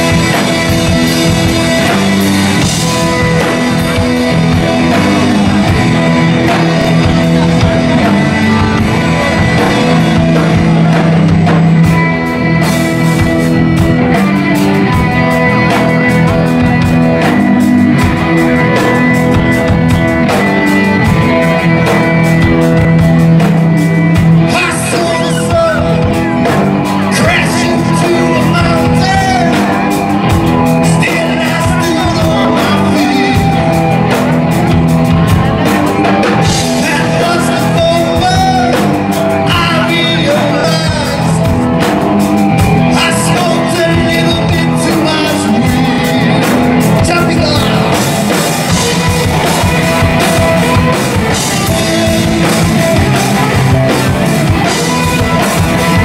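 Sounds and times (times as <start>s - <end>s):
drums: 0.0s - 56.0s
electric guitar: 0.0s - 56.0s
person singing and shouting: 24.4s - 34.1s, 35.6s - 41.6s, 42.6s - 56.0s.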